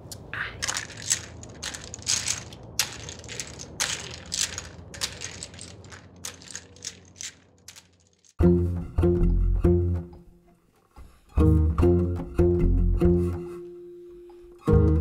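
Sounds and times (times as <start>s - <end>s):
domino tiles clacking: 0.4s - 8.4s.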